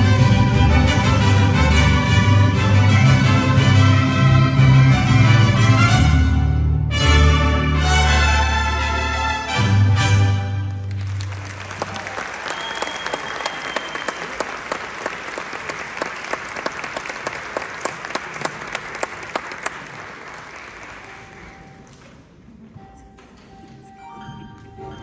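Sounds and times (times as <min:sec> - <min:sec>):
audience applauding: 0:10.7 - 0:22.3.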